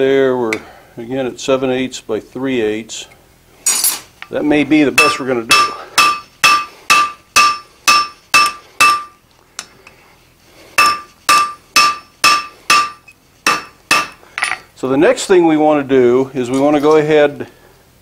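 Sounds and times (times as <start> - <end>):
hammer ringing on anvil: 5.0 - 9.2, 10.8 - 14.6.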